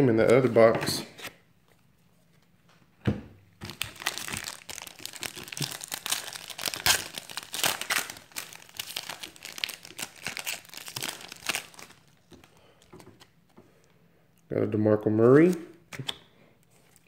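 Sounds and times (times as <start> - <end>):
foil pack crinkling: 3.6 - 12.8.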